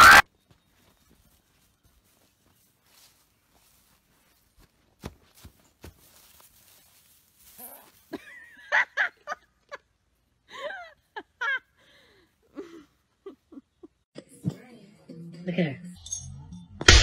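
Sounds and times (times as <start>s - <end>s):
person laughing: 8.1s - 9.8s, 12.5s - 14.0s.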